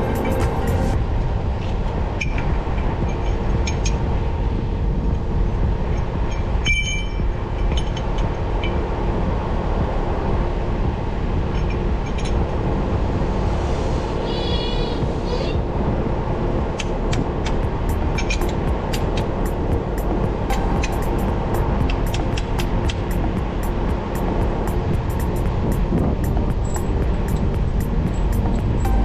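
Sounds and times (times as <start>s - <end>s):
heavy machinery engine running: 0.0s - 14.2s, 15.0s - 29.0s
sharp metallic clicks: 16.8s - 29.0s.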